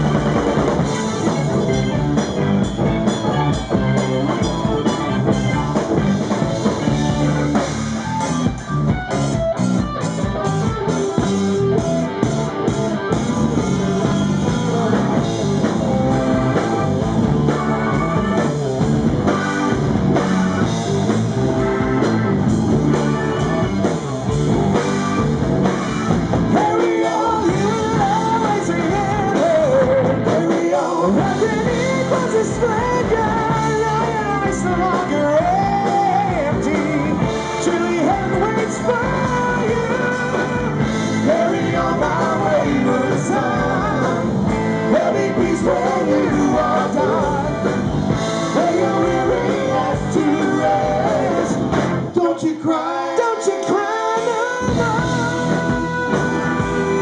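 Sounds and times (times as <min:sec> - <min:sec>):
live rock band playing: 0:00.0 - 0:57.0
man singing: 0:26.5 - 0:57.0.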